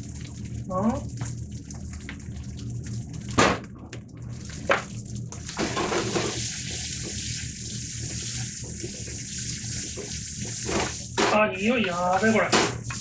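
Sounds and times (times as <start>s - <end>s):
rice sizzling in a frying pan: 4.6s - 13.0s.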